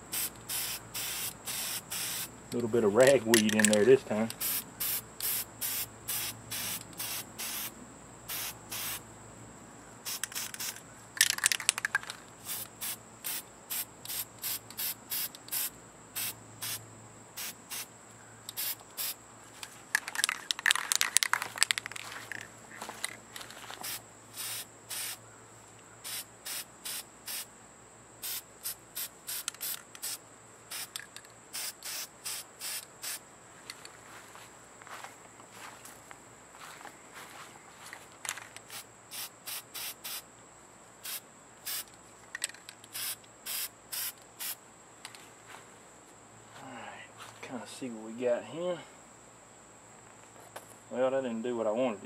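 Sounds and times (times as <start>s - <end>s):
insect chirping: 0.0s - 52.0s
rustling and handling noise: 10.2s - 12.7s, 19.4s - 24.0s, 33.6s - 38.8s, 45.0s - 47.5s.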